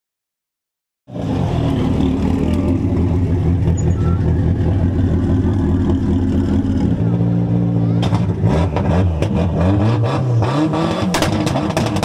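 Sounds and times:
car engine idling: 1.1 - 8.4.

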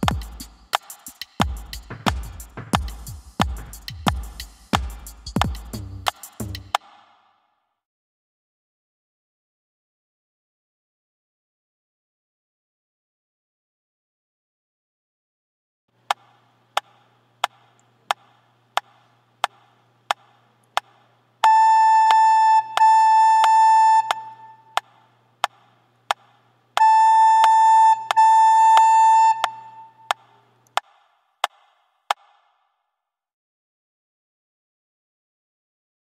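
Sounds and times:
metronome clicking: 21.4 - 24.8, 26.8 - 29.9.

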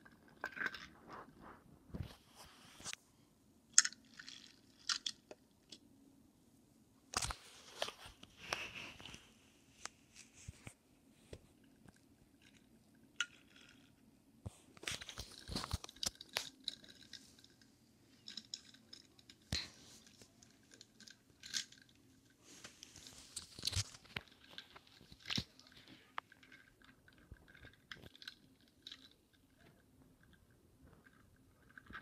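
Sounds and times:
toy cars rolling on wood: 14.9 - 32.0.

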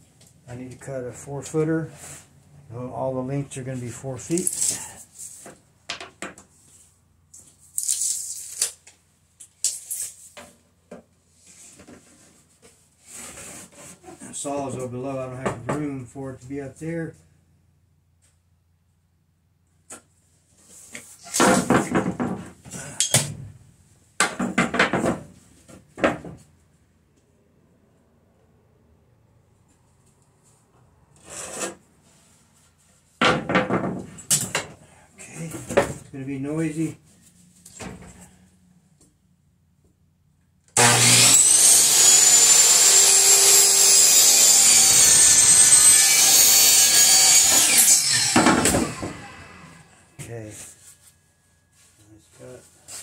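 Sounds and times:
power saw cutting wood: 40.8 - 50.0.

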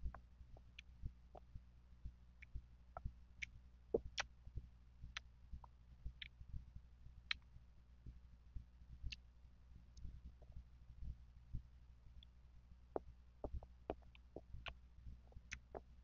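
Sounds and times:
wet mouth clicks: 13.4 - 14.8, 15.5 - 15.9.

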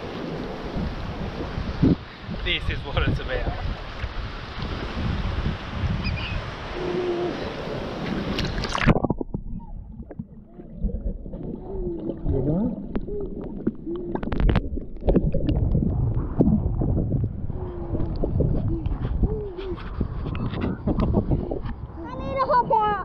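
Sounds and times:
wind on microphone: 0.0 - 23.0
water sloshing: 6.7 - 21.0
underwater gurgling: 6.7 - 22.0.

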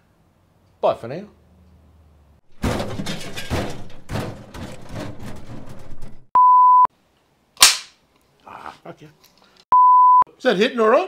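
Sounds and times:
electronic beep: 6.4 - 6.9, 9.8 - 10.2
clapperboard snap: 7.6 - 8.0.

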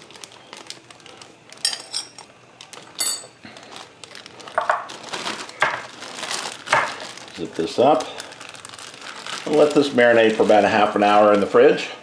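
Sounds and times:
plastic bag rustling: 0.0 - 11.8.

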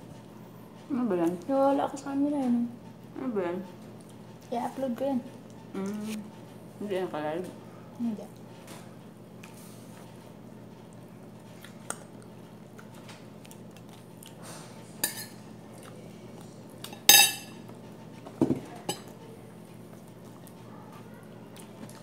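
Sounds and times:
steady low hum: 0.0 - 22.0
cutlery clinking on plates: 15.0 - 15.4, 16.8 - 17.6, 18.4 - 19.1.

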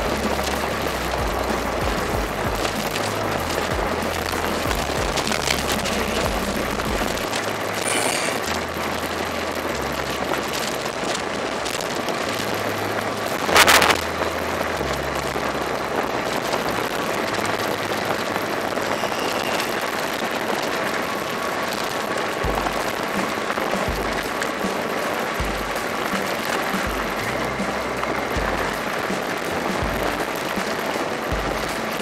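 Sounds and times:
short rush of noise: 0.0 - 8.7
background music bass line: 0.0 - 18.1, 22.4 - 32.0.

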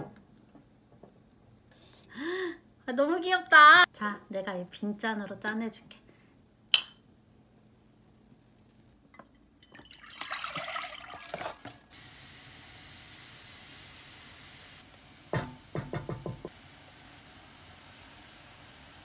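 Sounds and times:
broth pouring and splashing: 9.6 - 12.1
steady hiss: 11.9 - 19.0.

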